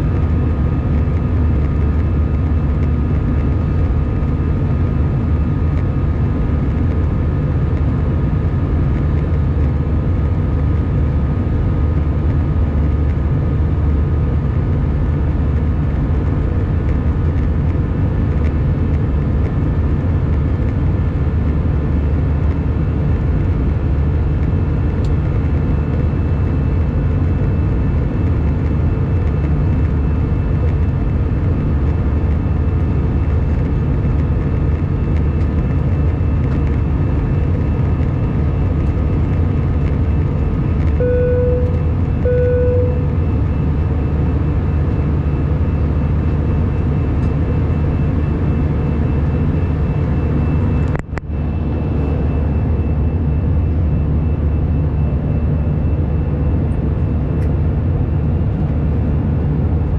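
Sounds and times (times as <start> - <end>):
airplane cabin engine roar: 0.0 - 59.9
faint high whine: 36.2 - 59.3
short low beeps: 40.9 - 43.3.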